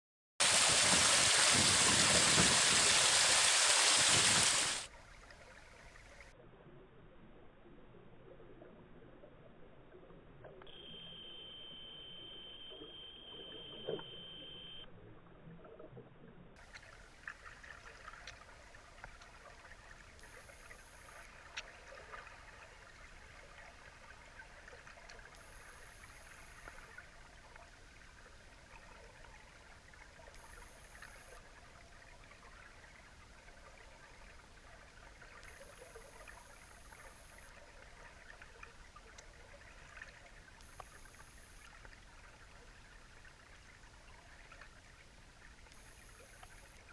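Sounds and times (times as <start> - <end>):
faint underwater crackle: 4.1 - 46.9
high steady tone: 10.7 - 14.9, 20.2 - 21.3, 25.4 - 27.0, 30.4 - 31.4, 35.4 - 37.5, 40.6 - 41.7, 45.7 - 46.9
whistle-like tone: 10.7 - 14.9, 20.2 - 21.3, 25.4 - 27.0, 30.4 - 31.4, 35.4 - 37.5, 40.6 - 41.7, 45.8 - 46.8.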